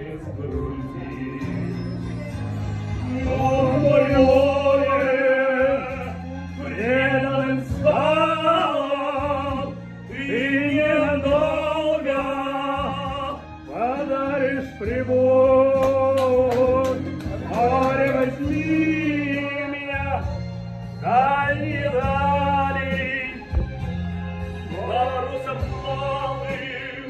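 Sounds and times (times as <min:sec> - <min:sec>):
man singing operatic tenor: 0:00.0 - 0:01.8, 0:03.0 - 0:20.3, 0:21.0 - 0:23.5, 0:24.7 - 0:27.0
backing track: 0:00.0 - 0:27.0
sharp claps: 0:15.8 - 0:18.6.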